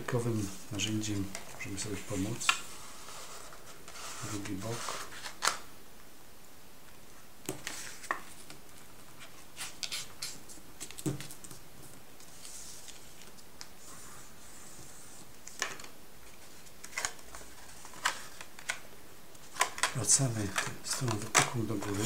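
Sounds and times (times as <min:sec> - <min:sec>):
paper folding and rustling: 0:00.0 - 0:05.6, 0:07.6 - 0:18.8, 0:19.4 - 0:22.0
paper sliding and rubbing: 0:00.3 - 0:05.4, 0:12.2 - 0:15.6.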